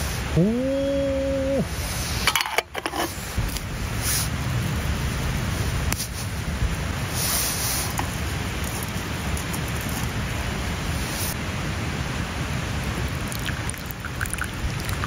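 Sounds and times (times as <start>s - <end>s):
rain hissing: 0.0s - 2.3s, 3.1s - 15.0s
tea trickling into a cup: 13.0s - 15.0s.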